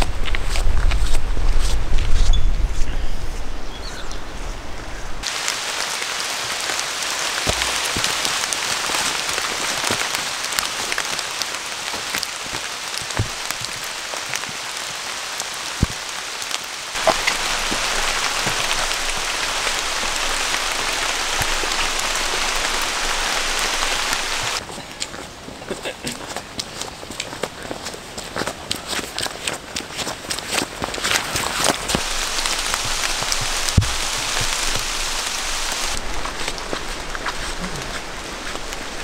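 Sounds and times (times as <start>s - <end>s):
steady rain falling: 4.7s - 39.0s
raindrops tapping: 5.2s - 24.6s, 30.8s - 38.9s.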